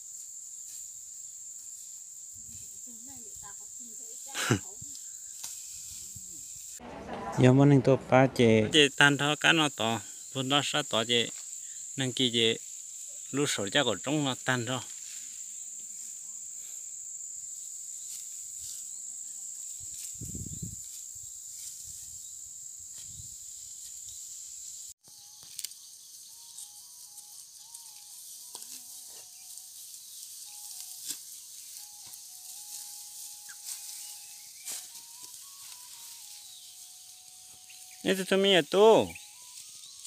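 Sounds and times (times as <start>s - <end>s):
dry rice stalks rustling: 0.0s - 7.4s, 12.2s - 16.9s, 17.5s - 40.0s
high-pitched insect chorus: 0.0s - 7.7s, 8.4s - 40.0s
faint simple melody: 26.2s - 40.0s.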